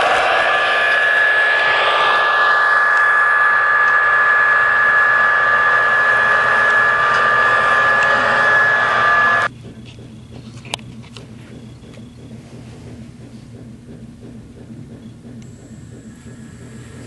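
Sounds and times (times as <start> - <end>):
model train whirring: 0.0 - 9.5.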